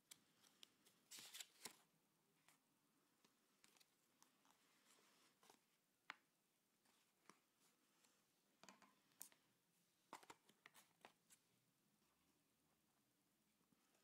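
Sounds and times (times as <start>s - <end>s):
paper rustling and clicking: 0.0s - 1.9s.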